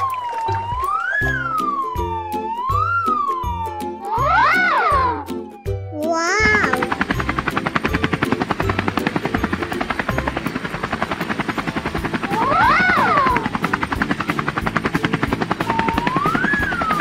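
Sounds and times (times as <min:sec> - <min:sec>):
whistle-like glide: 0:00.0 - 0:04.7, 0:12.3 - 0:17.0
cartoon helicopter rotor chop: 0:00.8 - 0:05.2, 0:06.2 - 0:17.0.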